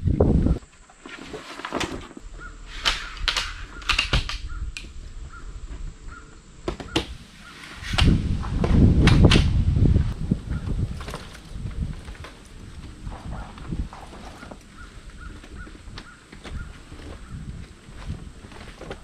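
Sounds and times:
wind rumbling on microphone: 0.0 - 0.7, 2.0 - 19.0
crows cawing: 2.2 - 7.6, 14.3 - 17.4.

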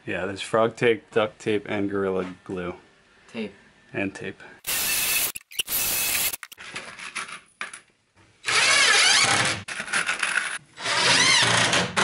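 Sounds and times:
cordless drill whining: 4.7 - 6.6.

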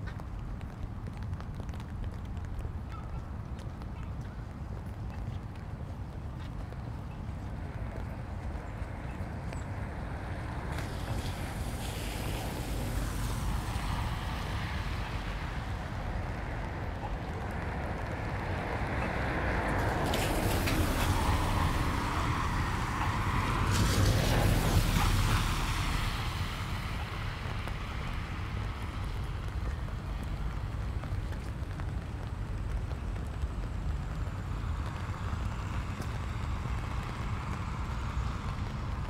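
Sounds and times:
tyres hissing on wet asphalt: 9.6 - 39.0.

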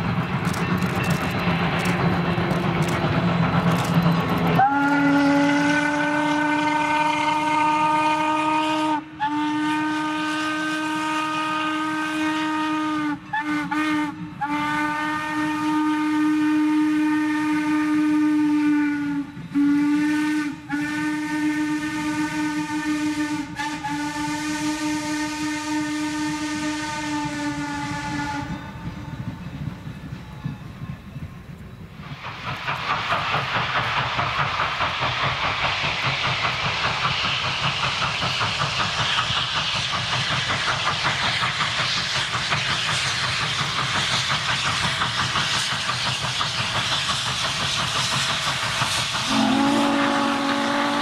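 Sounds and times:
steam locomotive whistle blasts: 4.5 - 29.6, 46.6 - 51.0.

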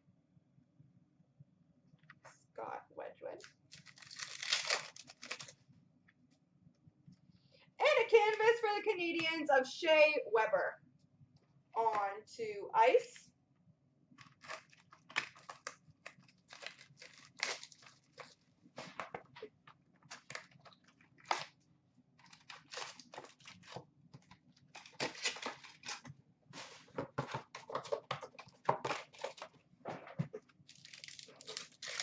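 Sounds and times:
cardboard tearing: 3.7 - 5.5, 14.2 - 19.0, 22.2 - 23.8, 24.7 - 29.4, 30.7 - 32.0
foil packs crinkling: 3.7 - 5.6, 14.2 - 19.1, 20.0 - 21.6, 22.2 - 23.8, 24.6 - 26.9, 27.7 - 29.6, 30.6 - 32.0.

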